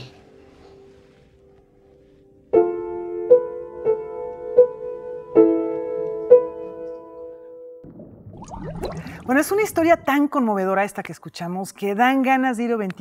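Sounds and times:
upright piano played slowly: 0:00.0 - 0:07.8.

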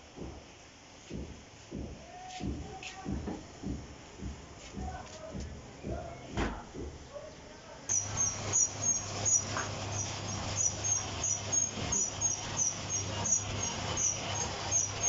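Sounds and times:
machine humming: 0:07.9 - 0:15.0.

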